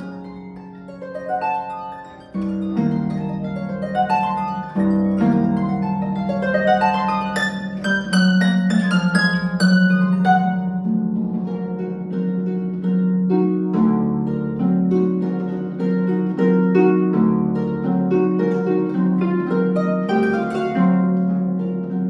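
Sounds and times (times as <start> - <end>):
concert harp playing: 0.0 - 22.0.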